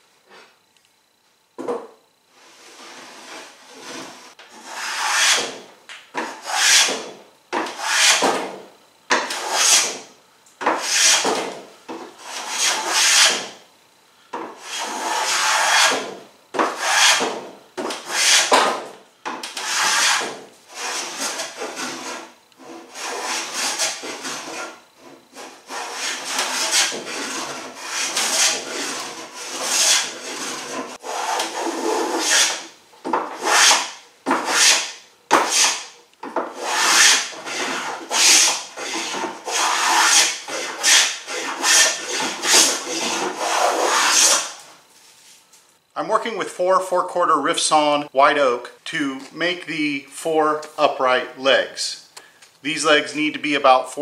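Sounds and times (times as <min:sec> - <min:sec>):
hand plane rasping on wood: 0:02.6 - 0:05.6, 0:06.3 - 0:07.0, 0:07.7 - 0:08.3, 0:09.3 - 0:10.0, 0:10.8 - 0:11.4, 0:12.2 - 0:13.5, 0:14.6 - 0:17.3, 0:18.0 - 0:18.6, 0:19.6 - 0:24.8, 0:25.4 - 0:32.6, 0:33.3 - 0:35.8, 0:36.5 - 0:44.6.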